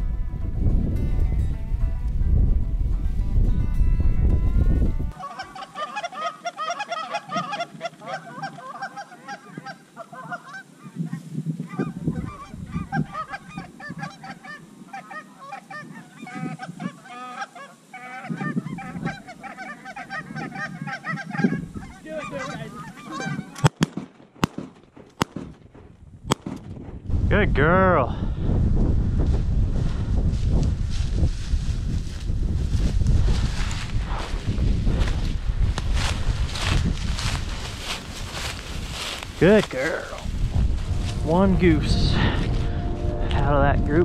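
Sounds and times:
geese honking: 5.1 - 23.8, 36.5 - 44.0
shotgun shots: 23.6 - 25.7, 26.3 - 26.8.

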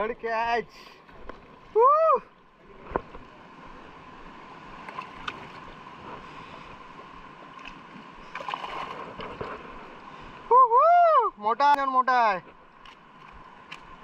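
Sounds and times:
sea water washing: 2.5 - 10.7.

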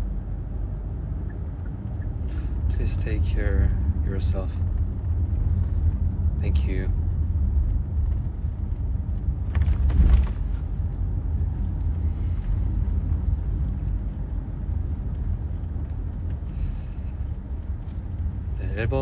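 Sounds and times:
car cabin road rumble: 0.0 - 19.0
brief rustle or knock: 9.5 - 10.6.

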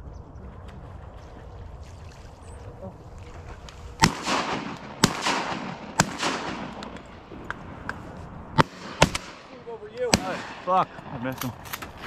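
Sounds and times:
shotgun shots with rolling echo: 4.0 - 7.9, 8.5 - 11.6.

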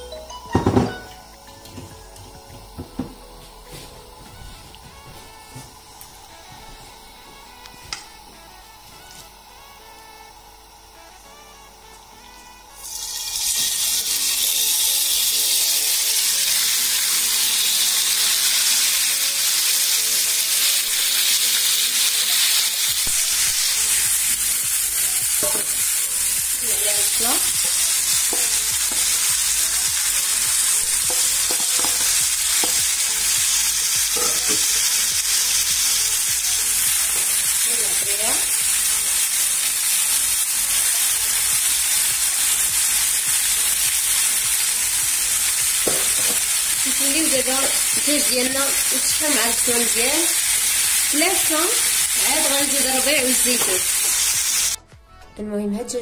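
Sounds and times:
chicken sizzling in frying pan: 12.2 - 54.8.

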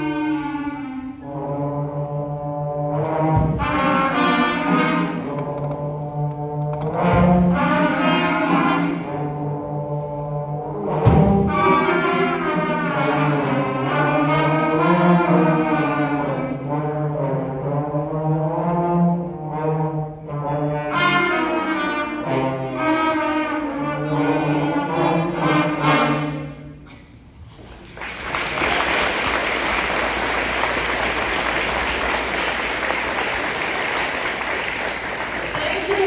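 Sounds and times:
trombones: 0.0 - 27.1, 28.0 - 36.0
concert band playing: 2.9 - 9.5, 28.4 - 36.0
audience applause: 27.6 - 36.0.

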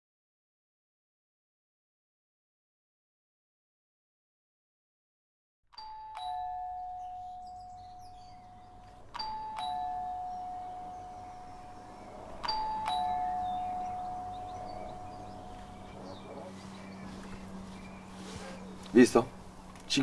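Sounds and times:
two-tone doorbell chime: 5.8 - 16.3.

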